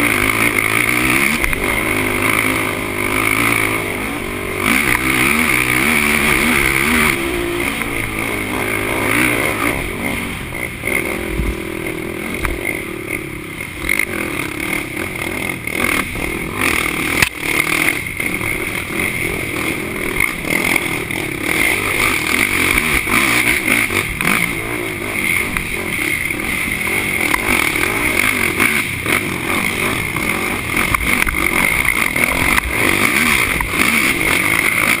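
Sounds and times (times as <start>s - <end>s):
quad engine revving: 0.0s - 35.0s.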